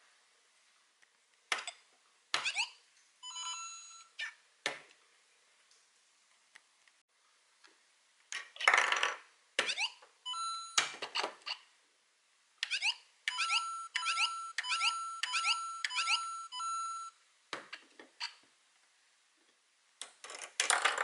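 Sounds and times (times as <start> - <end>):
beeping game jingle: 3.2 - 4.1, 10.3 - 10.8, 13.3 - 17.1
electronic chirps and beeps: 12.7 - 17.1.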